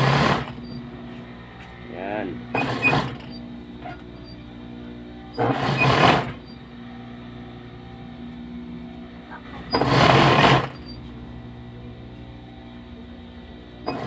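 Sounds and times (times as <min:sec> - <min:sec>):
sewing machine stitching: 0:00.0 - 0:00.8, 0:02.5 - 0:04.0, 0:05.4 - 0:06.4, 0:09.7 - 0:11.0
steady low hum: 0:00.0 - 0:14.0.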